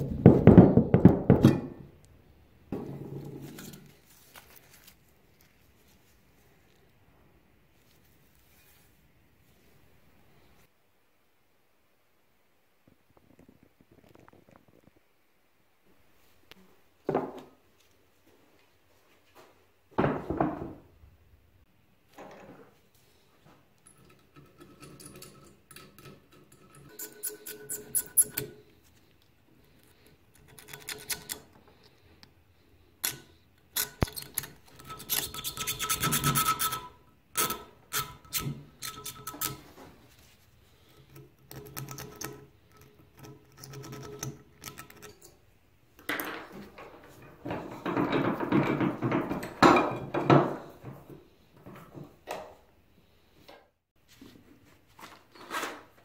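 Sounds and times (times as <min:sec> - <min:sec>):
steel pick scraping rust: 0:24.4 - 0:28.6.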